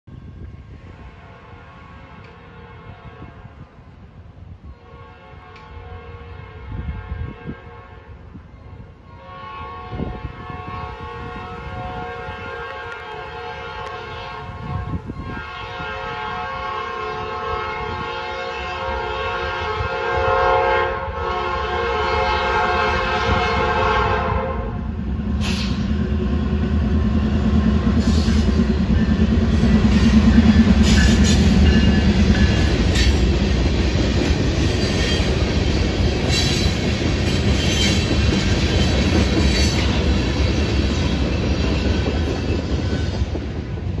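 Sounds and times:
locomotive air horn blasts: 1.1 - 3.8, 4.7 - 26.0
locomotive engine rumbling: 21.3 - 44.0
train wheels clicking and clanking: 25.2 - 44.0.

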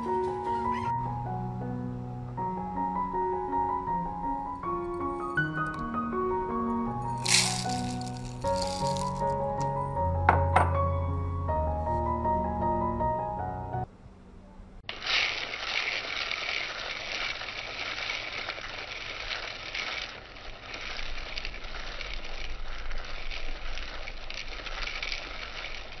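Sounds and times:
rice grains rattling in plastic cup: 7.0 - 9.8, 14.9 - 26.0.

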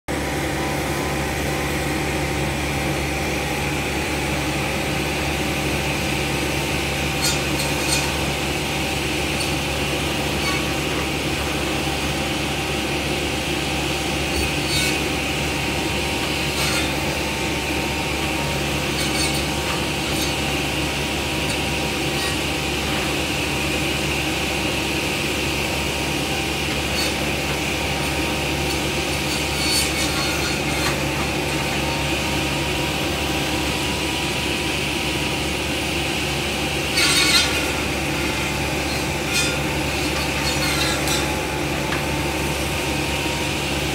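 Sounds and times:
tree trimmer engine droning: 0.1 - 43.9
saw cutting tree limbs: 5.5 - 33.8.

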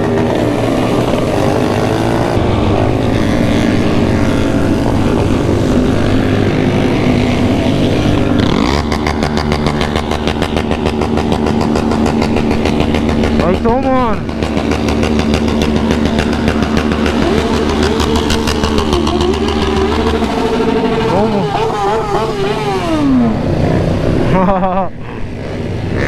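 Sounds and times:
group of motorcycle engines: 0.0 - 26.0
nearby engine pulsing: 0.0 - 26.0
wind and road noise: 0.0 - 26.0.

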